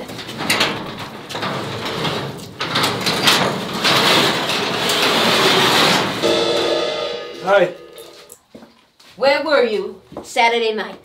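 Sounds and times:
garage door rattling on metal tracks: 0.0 - 6.6.

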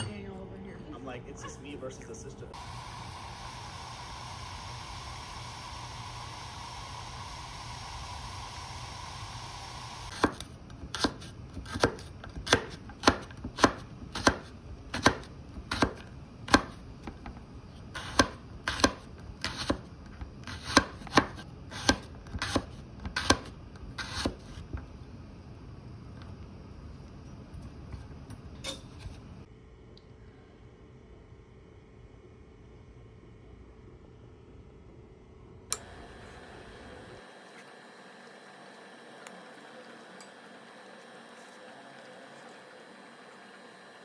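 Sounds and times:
pasta boiling in water: 2.6 - 11.8, 35.8 - 44.0
knife chopping on wooden board: 10.2 - 16.8, 18.0 - 19.8, 20.4 - 24.6.

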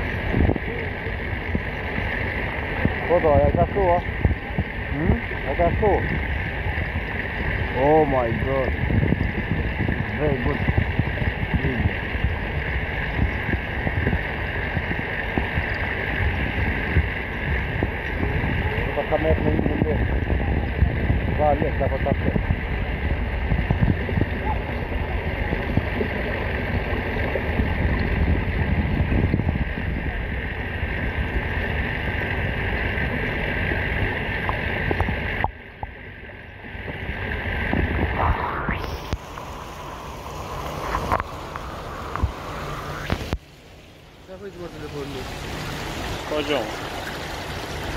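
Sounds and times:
muffled fountain water rushing: 0.0 - 47.9
low underwater rumble: 32.2 - 47.9
underwater rushing hiss: 37.5 - 47.9.

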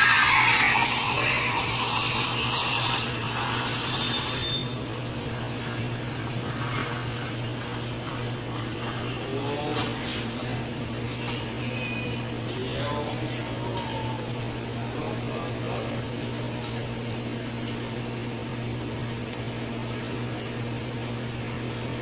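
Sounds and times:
steam wand hissing into milk: 0.0 - 4.5
low machine hum: 0.0 - 22.0.

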